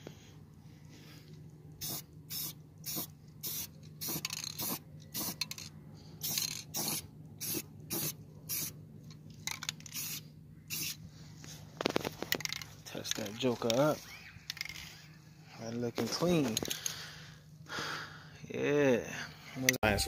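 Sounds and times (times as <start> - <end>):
spray can hissing bursts: 1.8 - 5.5, 6.2 - 8.7, 9.9 - 11.0.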